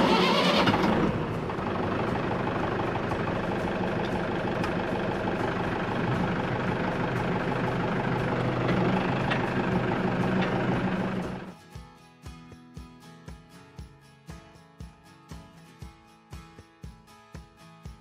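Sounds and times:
tractor diesel engine running: 0.0 - 11.6.

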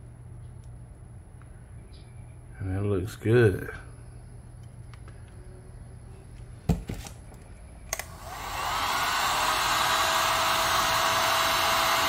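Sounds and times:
heat gun fan blowing: 7.9 - 12.0.

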